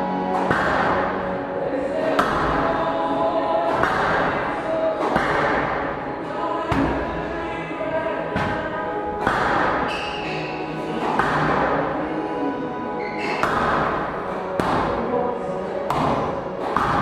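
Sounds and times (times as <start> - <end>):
music playing: 0.0 - 17.0
squash ball smacks: 0.3 - 1.2, 2.2 - 2.7, 3.6 - 6.0, 8.3 - 10.2, 11.0 - 11.9, 13.3 - 14.0, 14.6 - 15.1, 15.9 - 17.0.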